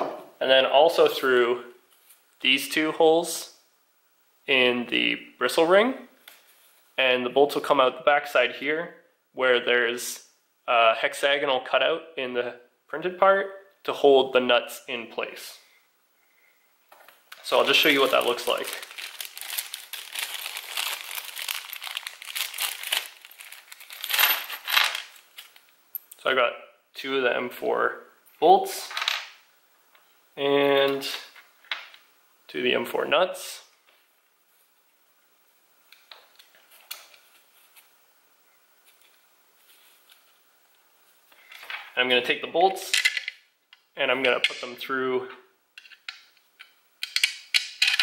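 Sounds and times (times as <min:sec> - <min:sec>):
plastic bag crinkling: 0:17.3 - 0:25.7.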